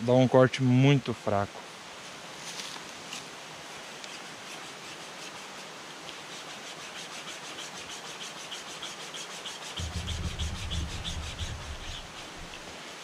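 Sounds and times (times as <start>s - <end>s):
wire saw rasping on log: 4.0s - 5.6s, 6.2s - 12.7s.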